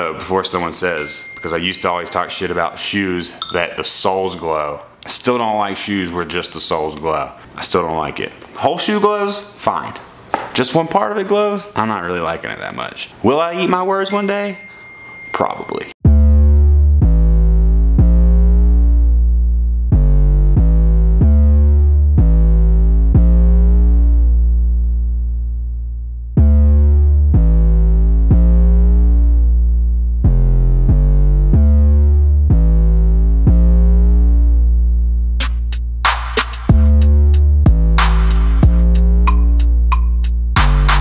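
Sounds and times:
synthesizer chords over deep bass: 16.0s - 41.0s
drum machine hits: 35.4s - 37.1s, 37.7s - 41.0s.

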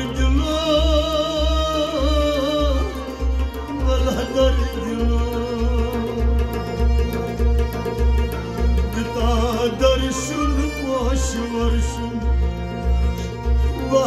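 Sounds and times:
man singing melismatic phrases: 0.0s - 6.4s, 8.8s - 12.4s, 13.8s - 14.0s
hand drum beat: 0.0s - 14.0s.

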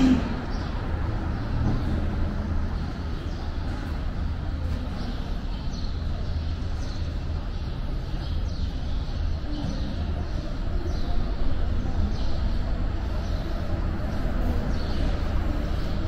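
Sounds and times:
small birds chirping: 0.3s - 16.0s
train rumbling: 8.8s - 16.0s.

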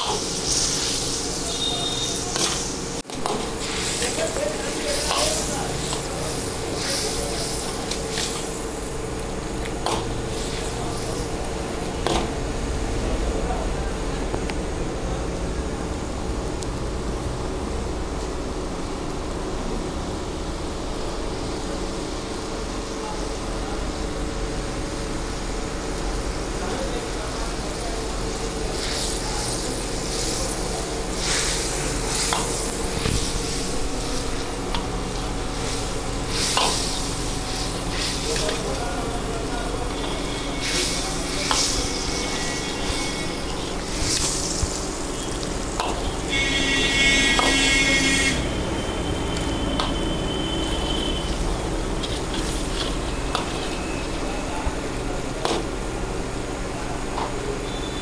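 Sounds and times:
ladle scraping wok: 0.0s - 12.2s, 28.3s - 54.5s
food sizzling in wok: 0.0s - 13.1s, 17.0s - 58.0s.

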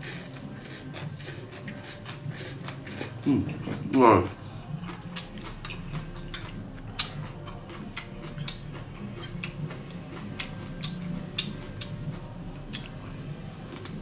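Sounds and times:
chewing and lip smacking: 4.7s - 14.0s.

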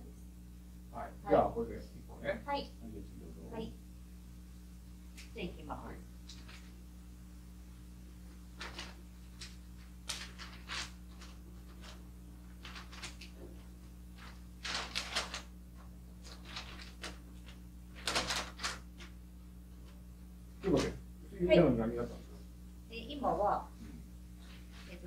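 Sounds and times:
wrapping paper rustling: 6.2s - 6.8s, 8.4s - 19.2s.

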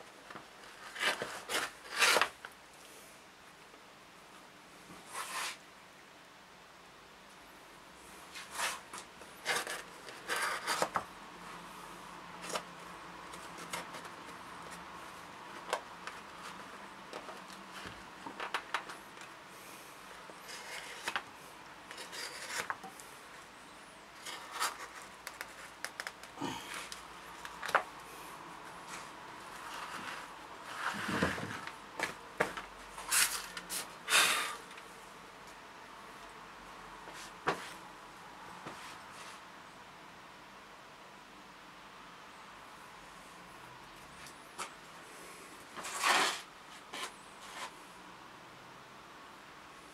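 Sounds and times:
paper rustling: 0.6s - 2.5s, 21.9s - 23.1s, 24.2s - 27.9s
knife cutting paper: 0.7s - 2.4s.

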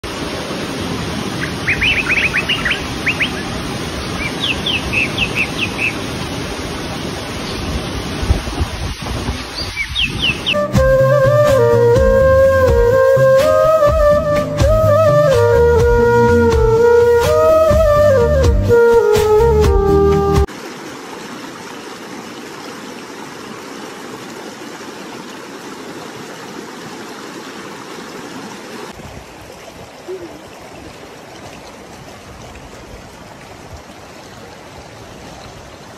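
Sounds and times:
river rushing over boulders: 0.0s - 10.6s, 20.5s - 35.9s
small bird singing: 1.4s - 3.5s, 4.2s - 6.0s, 9.3s - 10.7s.

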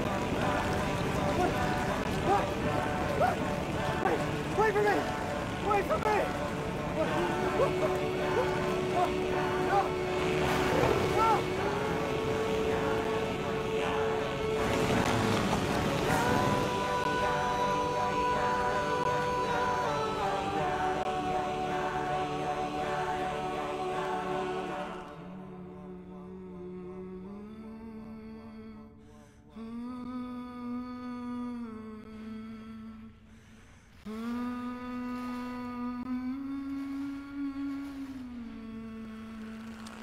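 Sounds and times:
layered voices humming: 0.0s - 28.7s
person humming a slow melody: 6.4s - 33.3s, 34.0s - 40.0s.

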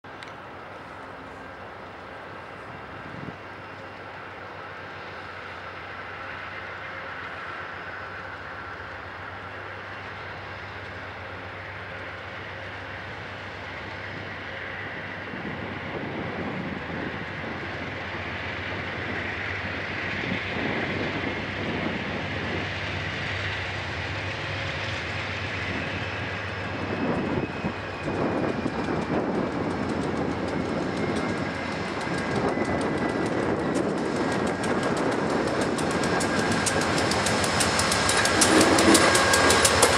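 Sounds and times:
passenger train approaching: 0.0s - 39.9s
wheels clattering over rails: 28.1s - 39.9s.

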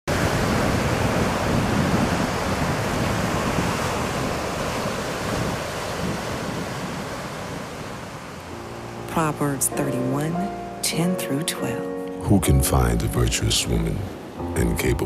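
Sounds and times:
wind buffeting microphone: 0.1s - 8.4s
sea waves washing in: 0.1s - 12.0s, 13.4s - 15.0s.

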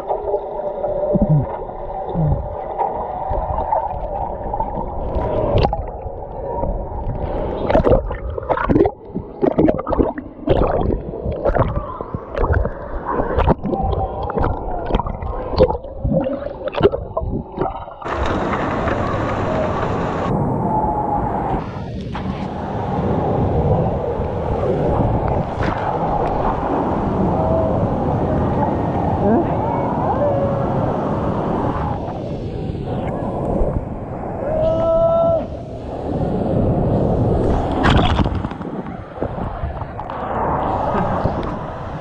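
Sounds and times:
splashing pool water: 0.0s - 20.3s
underwater gurgling and bubbles: 0.0s - 27.3s, 35.7s - 42.0s.

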